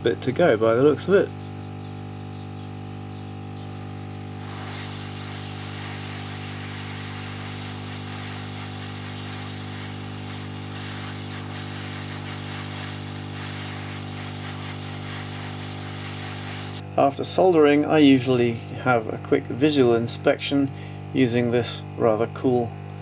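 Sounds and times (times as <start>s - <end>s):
motor hum: 0.0s - 17.1s
rush of hot air from nozzle: 4.3s - 16.8s.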